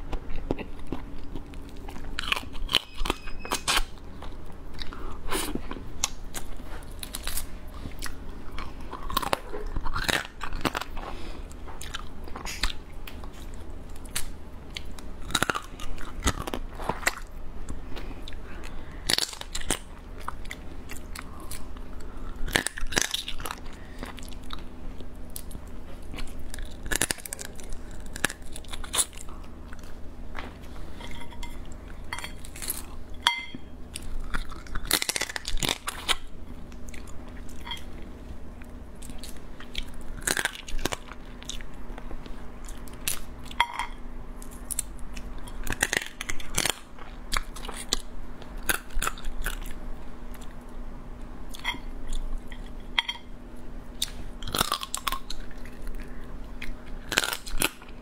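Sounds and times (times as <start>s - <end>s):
person chewing: 0.0s - 50.6s, 51.5s - 58.0s
crab shell crunching: 54.0s - 58.0s.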